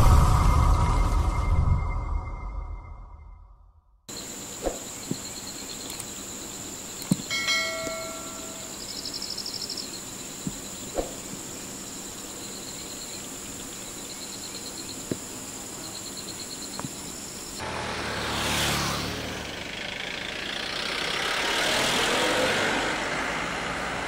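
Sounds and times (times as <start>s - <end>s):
loud rushing noise: 0.0s - 2.0s
insects droning: 4.1s - 24.0s.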